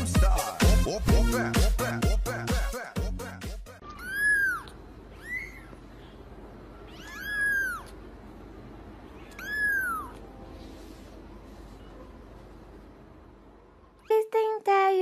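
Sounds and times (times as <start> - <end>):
kitten meowing: 3.8 - 5.8, 6.8 - 8.0, 9.1 - 10.3.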